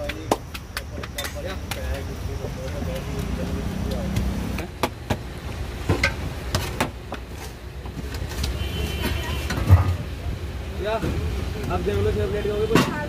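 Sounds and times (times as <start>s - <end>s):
street traffic hum: 0.0s - 13.0s.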